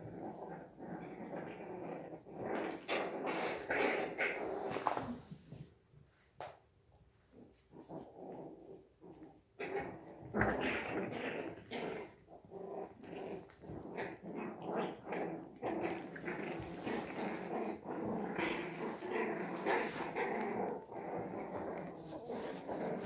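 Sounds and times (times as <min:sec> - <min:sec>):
puppies play-growling: 0:00.0 - 0:05.7, 0:06.4 - 0:23.0.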